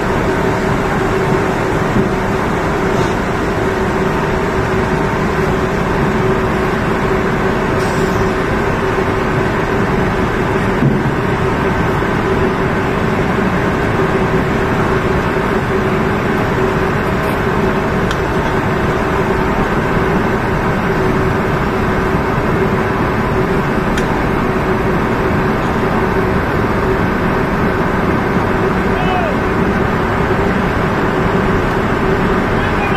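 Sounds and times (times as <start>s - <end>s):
machinery drone: 0.0s - 32.9s.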